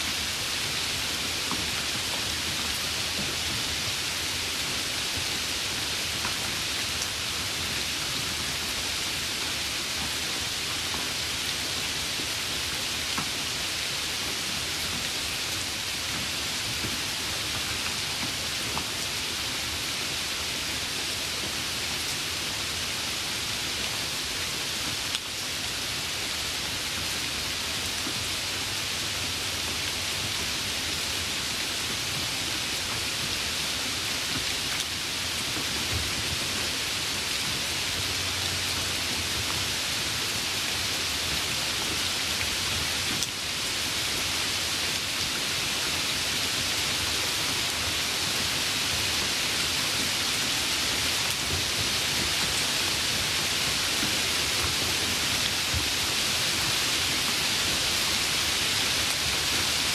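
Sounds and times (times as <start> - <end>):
steady rain falling: 0.0 - 59.9.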